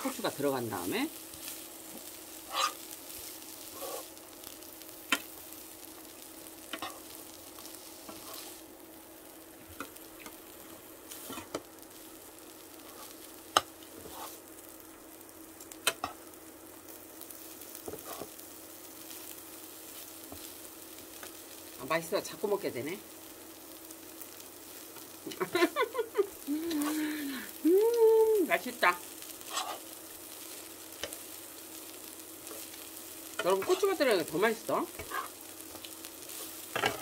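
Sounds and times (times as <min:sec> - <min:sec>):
food sizzling in a frying pan: 0:00.0 - 0:37.0
utensils scraping a pan: 0:02.5 - 0:02.8, 0:03.7 - 0:04.1, 0:08.1 - 0:08.5, 0:14.0 - 0:14.4, 0:17.9 - 0:18.3, 0:29.5 - 0:29.8, 0:33.4 - 0:34.0, 0:35.0 - 0:35.4, 0:36.7 - 0:37.0.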